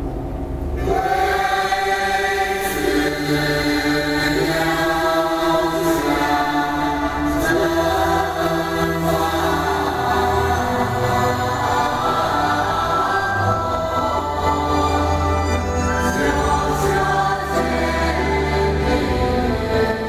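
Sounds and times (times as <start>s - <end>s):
low rumble: 0.0s - 2.6s
choral chanting: 0.8s - 20.0s.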